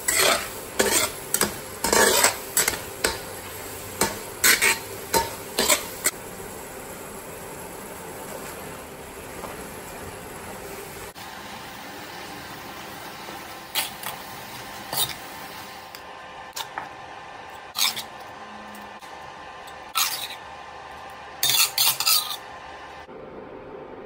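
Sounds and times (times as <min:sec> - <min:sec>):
spatula scraping a steel wok: 0:00.0 - 0:06.2, 0:13.7 - 0:15.4, 0:17.7 - 0:18.3, 0:19.8 - 0:20.5, 0:21.4 - 0:22.5.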